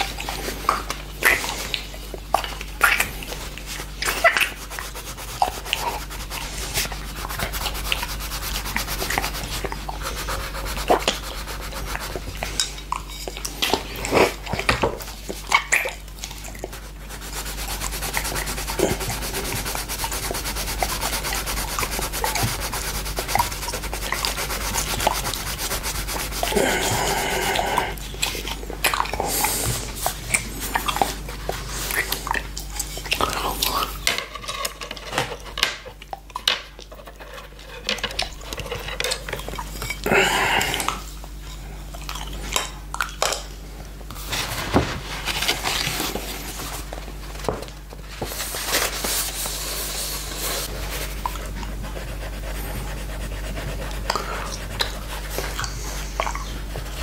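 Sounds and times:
pencil scratching on paper: 4.1 - 12.4, 16.7 - 27.5, 48.4 - 55.6.

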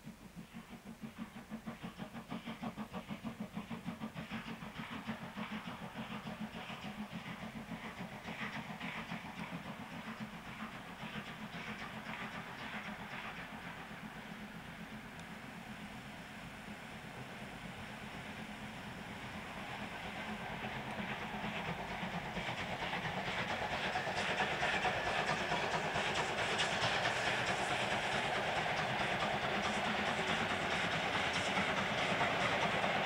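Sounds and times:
steam locomotive exhaust beat: 0.0 - 33.0.

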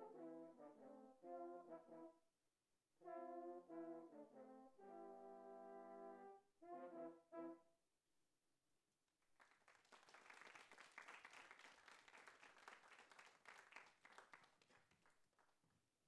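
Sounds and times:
french horn quartet playing: 0.0 - 2.1, 3.0 - 7.6
audience applauding: 9.4 - 15.6.

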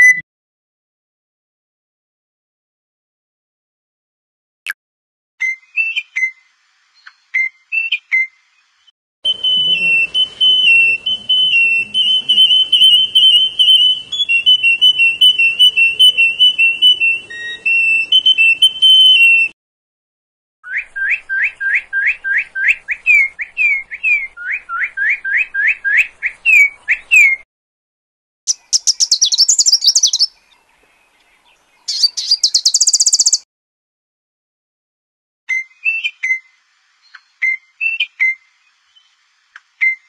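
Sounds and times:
canary trilling song: 9.3 - 19.5, 28.5 - 30.7, 31.8 - 33.4
cardinal rising whistles: 9.3 - 19.5
sunbird high chittering calls: 28.5 - 33.4.

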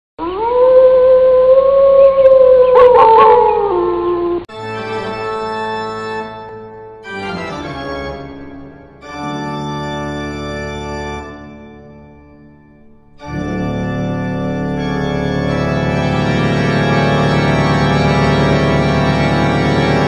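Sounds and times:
wolf howling: 0.2 - 4.5
organ chords: 2.8 - 20.0.

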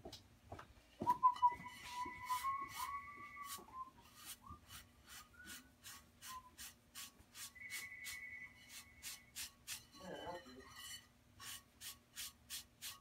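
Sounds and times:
sponge scrubbing a plate: 1.6 - 13.0.

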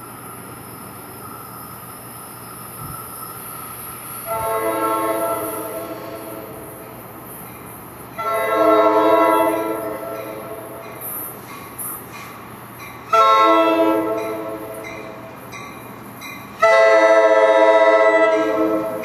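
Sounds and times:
train horn blasts: 4.2 - 6.8, 8.2 - 10.8, 13.1 - 15.2, 16.6 - 19.0.

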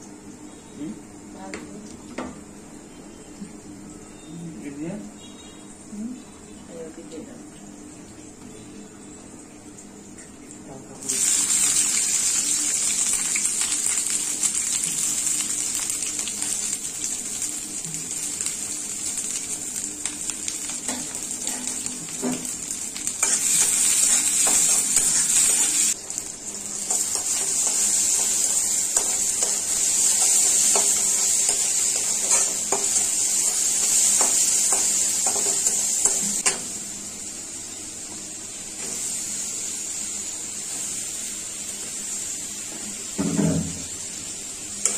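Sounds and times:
vegetables sizzling in hot oil: 10.9 - 44.9.

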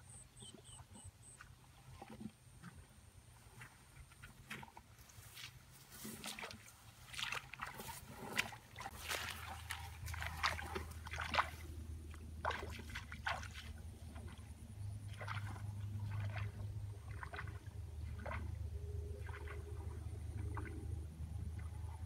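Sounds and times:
low steady hum: 0.0 - 22.0
footsteps rustling through tall grass: 5.0 - 11.7.

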